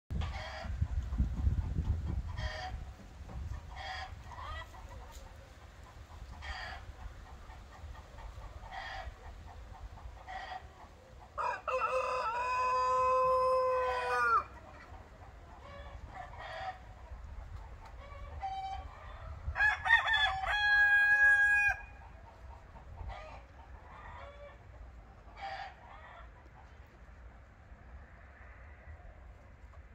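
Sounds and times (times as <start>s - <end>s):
hens clucking: 0.1s - 29.9s
rooster crowing: 11.4s - 14.5s, 19.6s - 22.0s.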